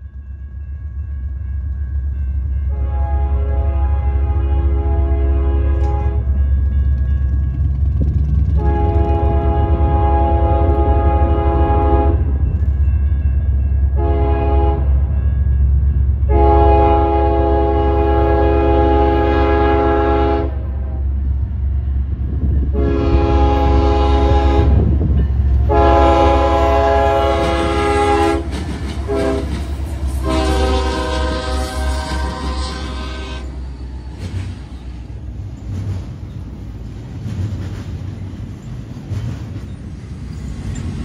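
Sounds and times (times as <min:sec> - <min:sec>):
diesel locomotive rumble: 0:00.0 - 0:41.0
locomotive air horn blasts: 0:02.7 - 0:06.4, 0:08.5 - 0:12.3, 0:14.0 - 0:14.9, 0:16.3 - 0:21.0, 0:22.7 - 0:24.9, 0:25.6 - 0:33.6.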